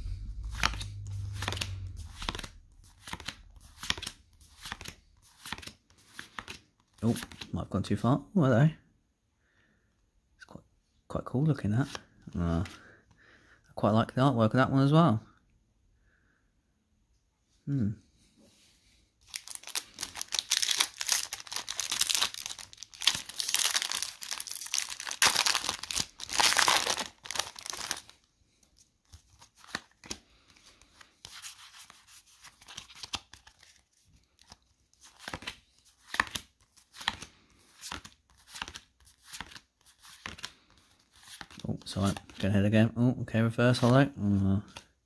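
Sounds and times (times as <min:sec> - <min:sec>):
cards rustling: 0:00.3 - 0:07.5, 0:19.2 - 0:42.4
foil wrapper tearing and crinkling: 0:19.3 - 0:28.1.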